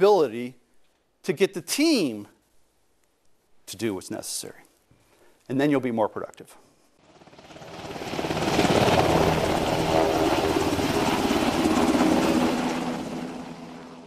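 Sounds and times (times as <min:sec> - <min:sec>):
helicopter rotor chopping: 0:07.0 - 0:14.0.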